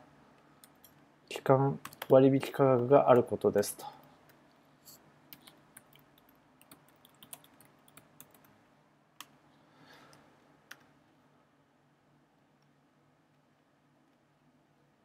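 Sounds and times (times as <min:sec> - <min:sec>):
faint keyboard typing: 0:00.3 - 0:09.4, 0:10.0 - 0:11.0.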